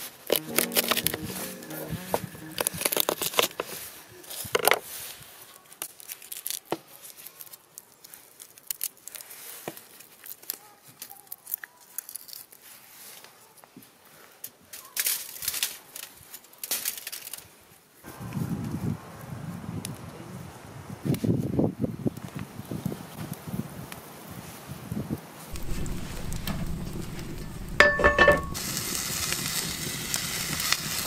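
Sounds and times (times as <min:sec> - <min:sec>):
aluminium foil crinkling: 0:05.5 - 0:13.6, 0:14.7 - 0:17.6.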